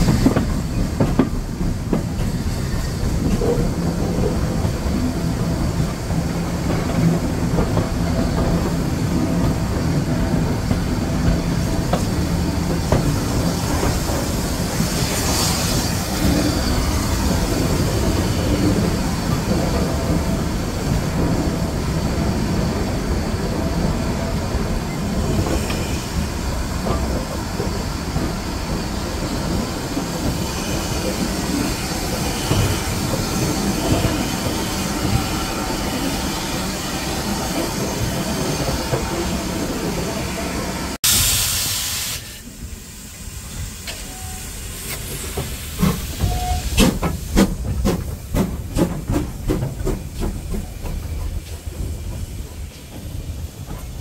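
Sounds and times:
locomotive clicks and clanks: 0.0 - 22.3, 43.6 - 54.0
steam hiss: 0.0 - 54.0
train rumbling and rattling: 0.0 - 54.0.

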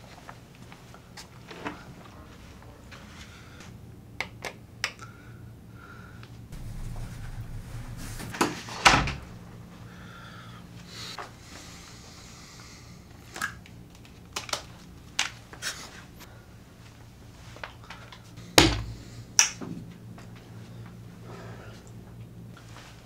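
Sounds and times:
louder knock: 6.6 - 10.0.

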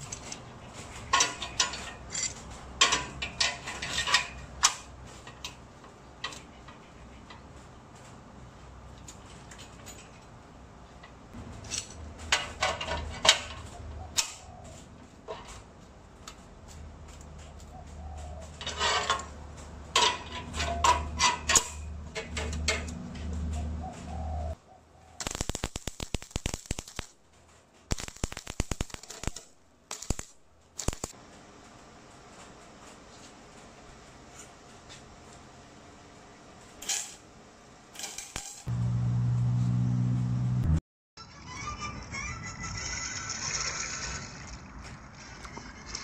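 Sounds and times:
metal parts knocking and clanking: 0.0 - 5.6, 11.6 - 14.4, 19.9 - 23.3, 37.9 - 38.7
mig welding crackle: 25.2 - 32.2.

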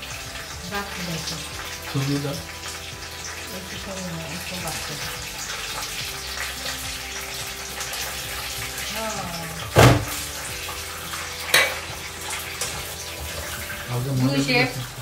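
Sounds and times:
cookware knocks: 9.8 - 10.1.

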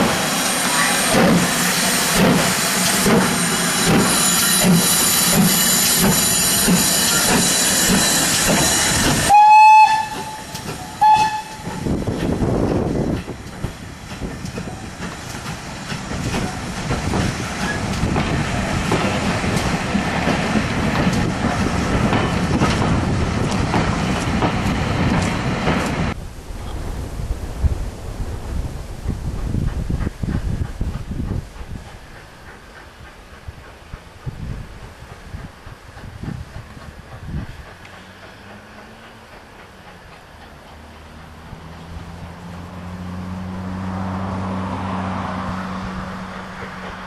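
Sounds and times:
steam locomotive hissing and chuffing: 0.0 - 47.0
train rumbling by: 0.0 - 47.0
steam whistle blasts: 4.2 - 11.9.

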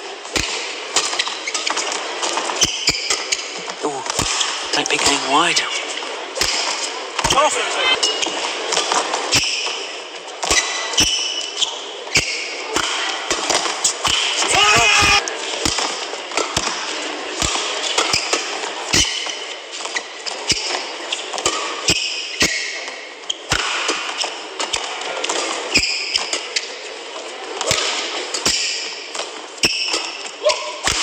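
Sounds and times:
rackets hitting shuttlecock: 0.3 - 4.8, 12.1 - 14.5, 15.6 - 20.0
crowd murmur: 7.1 - 8.0.

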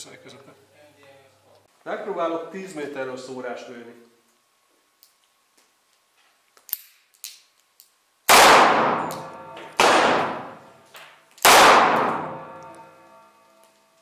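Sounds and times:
revolver gunshots echoing: 8.3 - 10.8, 11.4 - 12.7.

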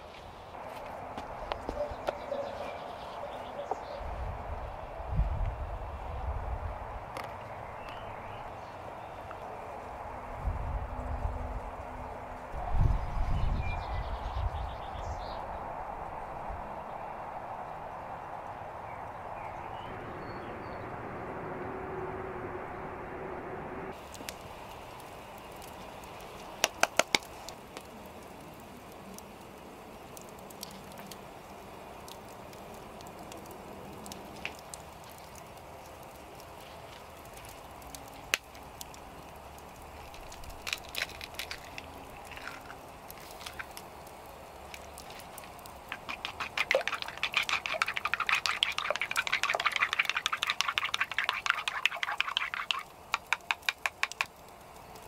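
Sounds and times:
wood fire crackling: 23.9 - 55.0.

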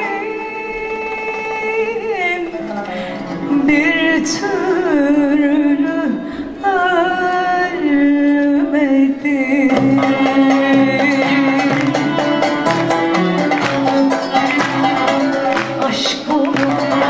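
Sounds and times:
woman singing with ornaments: 3.4 - 12.2, 14.2 - 17.0
plucked strings: 9.7 - 17.0.

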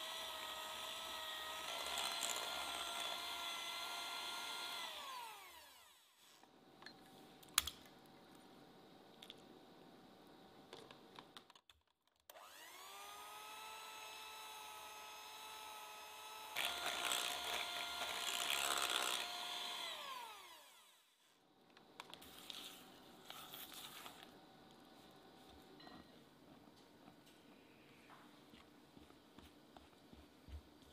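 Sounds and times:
electric hand mixer whining: 0.0 - 6.0, 12.3 - 21.0.

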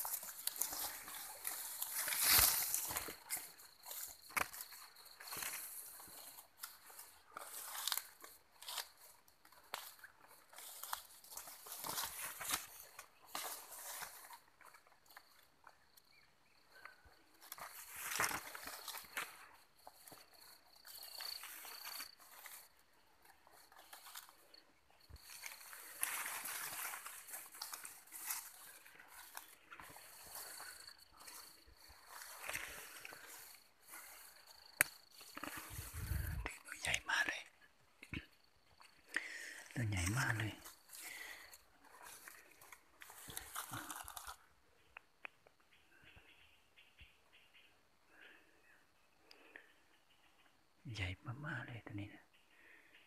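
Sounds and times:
twigs snapping: 0.0 - 5.7, 6.6 - 15.3, 16.8 - 20.2, 25.2 - 36.6, 40.1 - 44.4
leaves brushing past: 0.0 - 6.2, 25.2 - 36.5
footsteps crunching through leaves: 0.0 - 14.5, 17.5 - 19.4, 25.2 - 36.7, 39.7 - 44.4.

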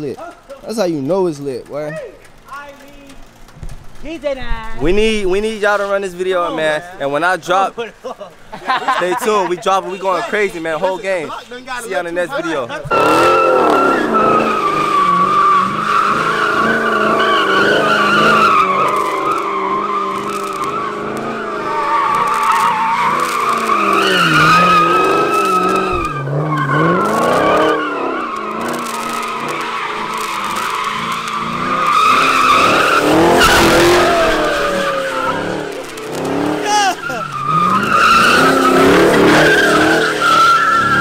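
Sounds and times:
tires squealing: 0.0 - 41.0
car engine revving: 12.0 - 41.0.

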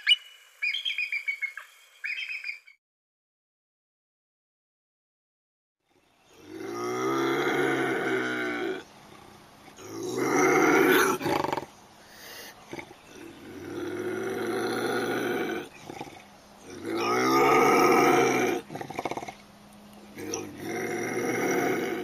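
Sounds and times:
bobcat yowling: 12.4 - 19.4.

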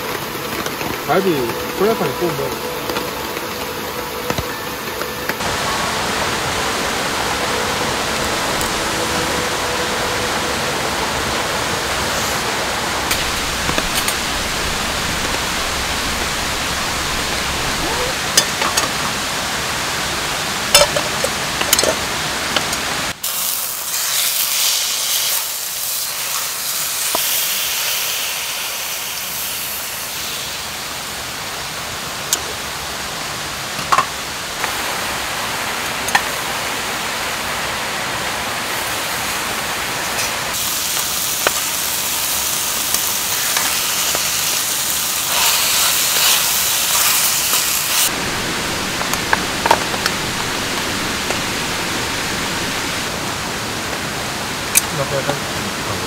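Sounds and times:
meat sizzling in a pan: 23.2 - 31.1, 40.2 - 52.9.

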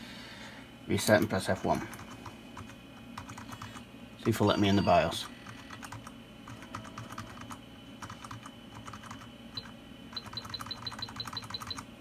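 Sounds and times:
computer keyboard keys pressed: 1.9 - 3.8, 5.4 - 11.8
short high computer beeps: 9.6 - 11.8.

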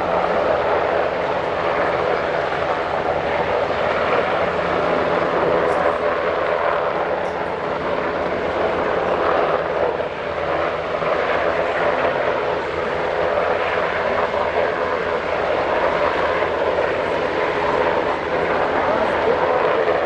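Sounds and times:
helicopter rotor and turbine din: 0.0 - 20.0.

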